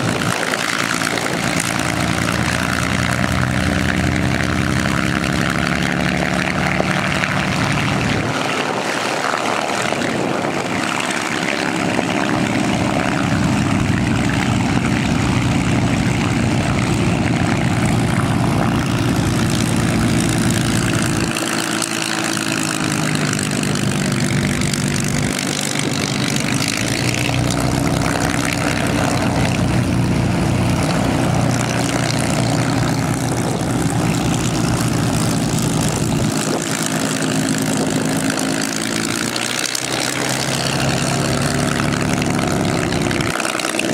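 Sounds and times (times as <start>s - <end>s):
aircraft piston engines droning: 0.0s - 43.9s
propeller noise: 0.0s - 43.9s.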